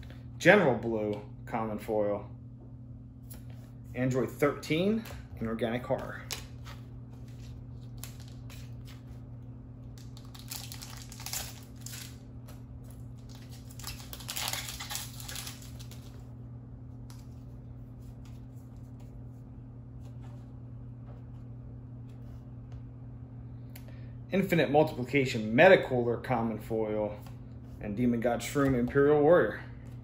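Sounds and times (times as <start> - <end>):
steady low hum: 0.0 - 30.0
foil wrapper crinkling and tearing: 10.0 - 16.2.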